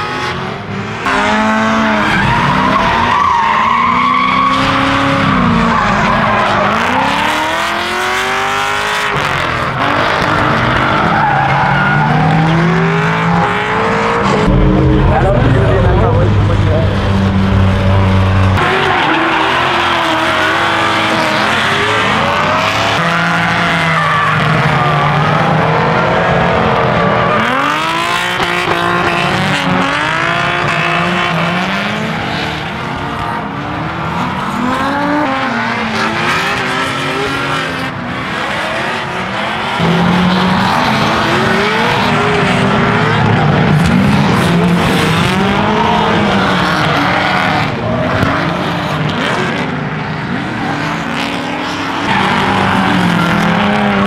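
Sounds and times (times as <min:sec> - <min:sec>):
car engines revving: 0:00.0 - 0:54.0.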